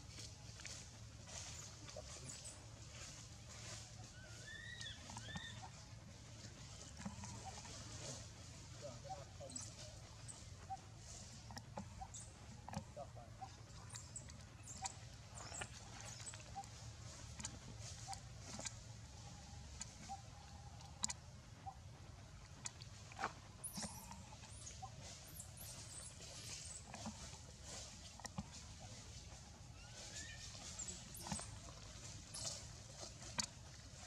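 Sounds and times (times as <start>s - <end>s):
low steady rumble: 0.0s - 34.0s
faint chirps and squeaks: 0.7s - 21.8s, 23.6s - 34.0s
high squeaky calls: 3.6s - 5.8s, 13.4s - 16.8s, 23.6s - 26.8s, 29.7s - 33.1s.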